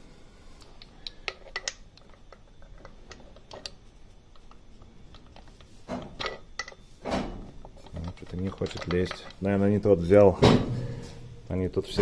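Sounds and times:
light metallic clicks and taps: 7.6 - 9.5.

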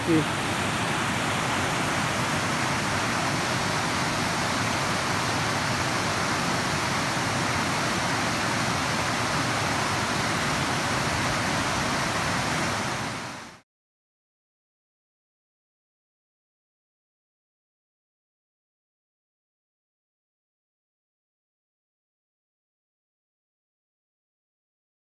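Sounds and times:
water rushing over rocks: 0.0 - 13.6.

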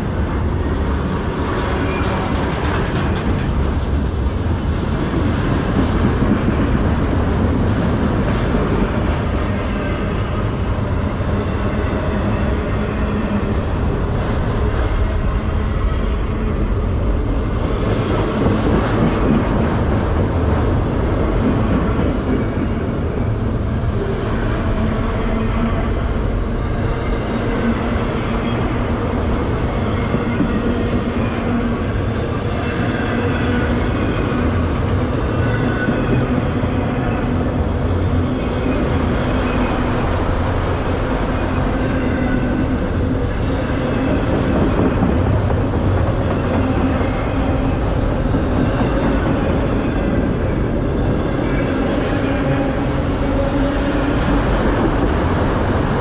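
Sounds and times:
freight cars rumbling on rails: 0.0 - 56.0.

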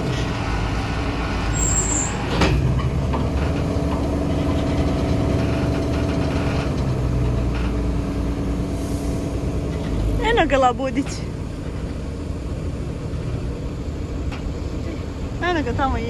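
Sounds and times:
diesel engine running: 0.0 - 16.0
clunk: 2.1 - 8.0.

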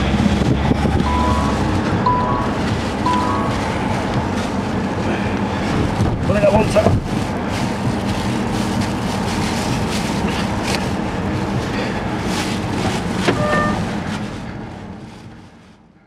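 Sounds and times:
car engine and road rumble: 0.0 - 16.0
brief high squeak: 13.3 - 13.8.

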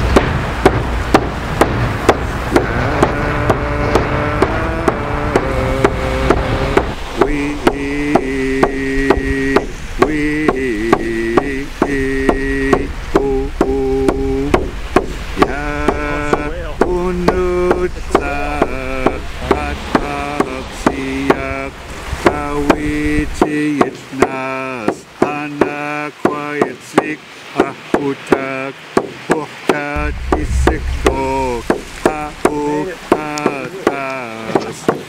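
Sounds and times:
steady percussive beat: 0.1 - 8.8, 12.8 - 21.6, 30.0 - 34.0
sustained pitched chords: 15.4 - 21.8, 30.0 - 33.6.

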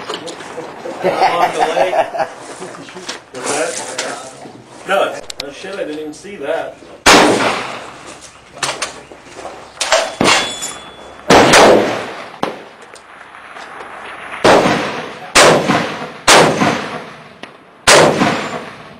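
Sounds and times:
artillery simulator bangs: 7.0 - 8.1, 9.8 - 12.8, 14.1 - 18.9
shotgun shots: 7.0 - 8.9, 9.8 - 18.9.

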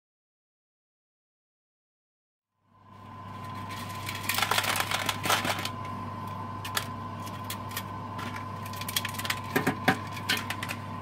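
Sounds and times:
steady low hum: 2.6 - 11.0.

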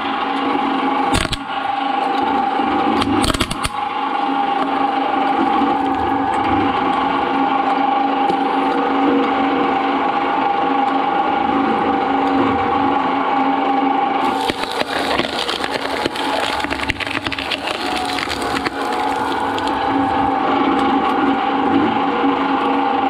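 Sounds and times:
shredder motor hum: 0.0 - 23.0
coconut shell cracking and splintering: 1.1 - 1.5, 3.0 - 3.8, 14.2 - 20.4.

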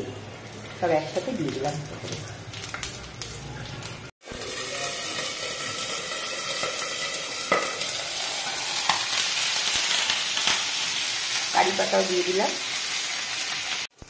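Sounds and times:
spices sizzling in hot oil: 0.0 - 14.0.

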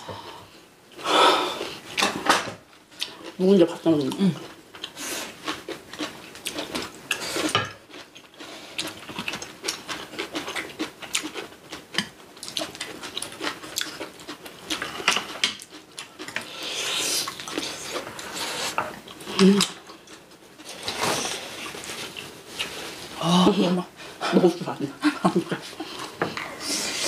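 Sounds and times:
chewing: 3.0 - 23.0.

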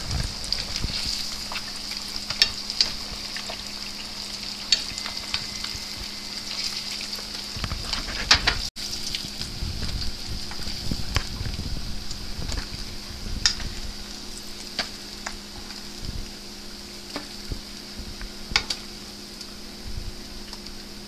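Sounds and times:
sharp clicks and crackles: 0.0 - 3.7, 4.6 - 16.2, 18.2 - 19.6
fish deep-frying in oil: 0.0 - 21.0.

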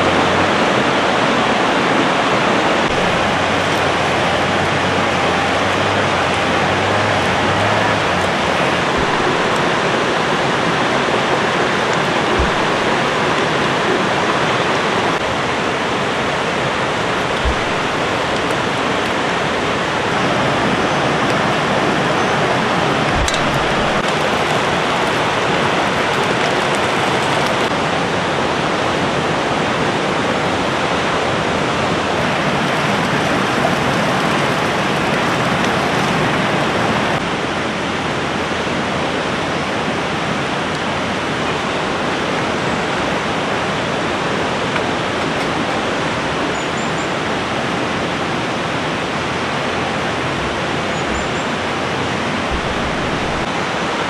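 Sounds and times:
water rushing: 0.0 - 54.0.

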